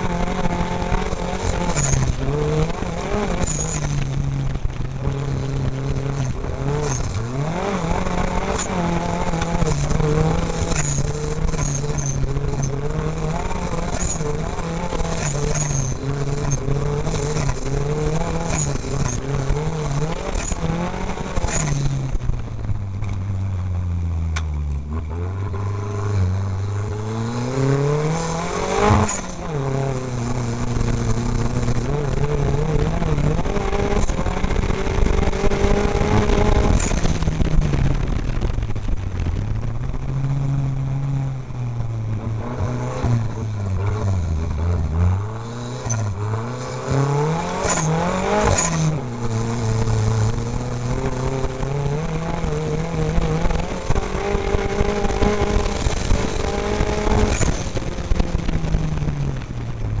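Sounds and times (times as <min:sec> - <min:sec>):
race car engine revving: 0:00.0 - 1:00.0.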